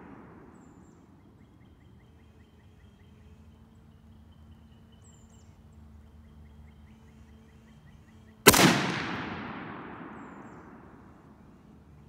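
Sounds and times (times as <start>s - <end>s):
rifle shot echoing: 0.0s - 0.8s, 8.5s - 11.4s.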